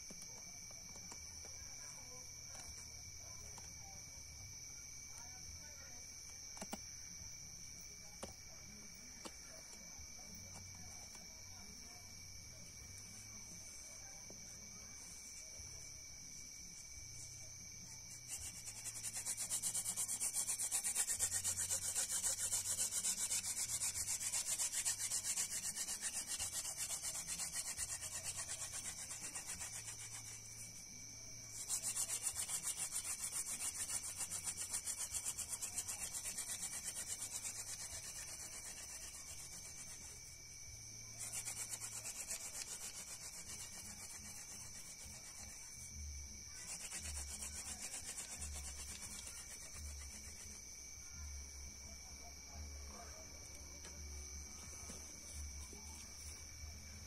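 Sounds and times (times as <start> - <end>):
wooden spindle rubbing in hearth board: 16.8 - 50.9.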